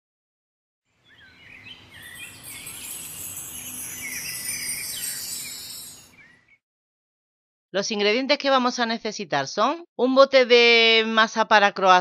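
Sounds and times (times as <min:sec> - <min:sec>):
birds chirping: 0:01.0 - 0:06.6
high steady hiss: 0:02.2 - 0:06.1.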